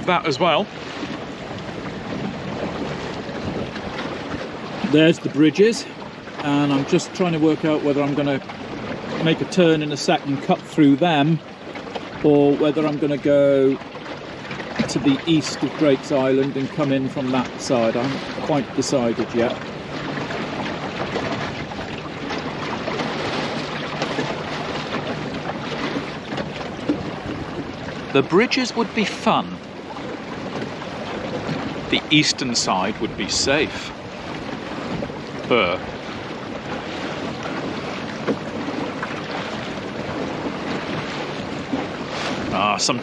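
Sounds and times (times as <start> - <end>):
water rushing along a hull: 0.0 - 43.0
wind on microphone: 0.7 - 4.9, 30.4 - 43.0.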